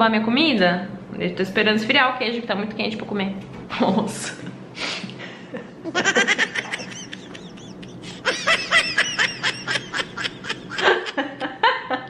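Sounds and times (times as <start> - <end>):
woman laughing: 5.6 - 12.0.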